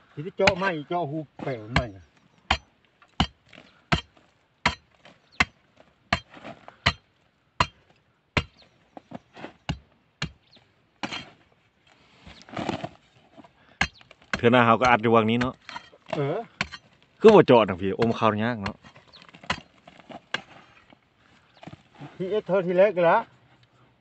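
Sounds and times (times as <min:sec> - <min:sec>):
digging tool striking clay: 0:01.4 - 0:01.9, 0:02.5 - 0:08.7, 0:09.4 - 0:10.4, 0:11.0 - 0:11.4, 0:13.8 - 0:20.6
scrape of loosened earth: 0:11.0 - 0:13.6, 0:18.8 - 0:22.6.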